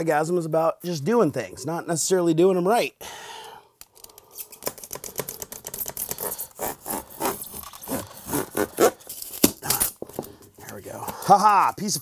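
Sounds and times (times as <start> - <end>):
utility knife rasping through foam: 6.0 - 9.1.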